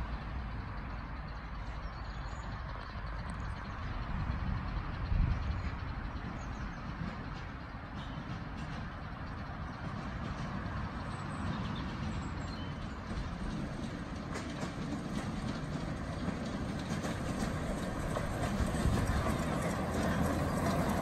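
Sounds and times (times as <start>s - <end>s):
miniature steam locomotive running: 0.0s - 21.0s
wheels on track: 0.0s - 21.0s.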